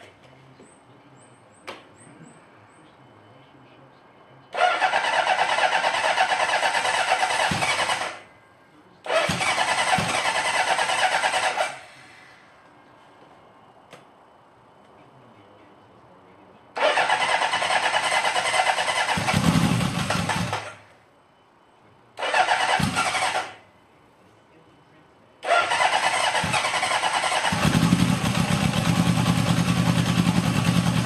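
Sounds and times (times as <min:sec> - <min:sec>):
motorcycle starter cranking: 0:04.6 - 0:08.2, 0:09.1 - 0:11.9, 0:16.8 - 0:20.8, 0:22.2 - 0:23.6, 0:25.4 - 0:31.0.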